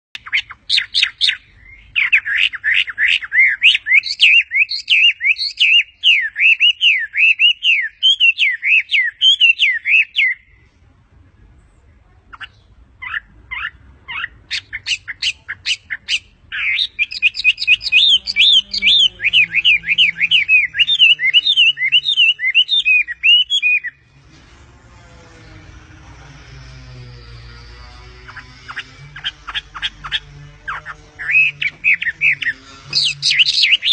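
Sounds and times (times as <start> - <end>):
bird singing whistled phrases: 0.2 - 10.5, 13.6 - 24.0
sharp separate bird notes: 12.3 - 24.2, 25.4 - 33.9.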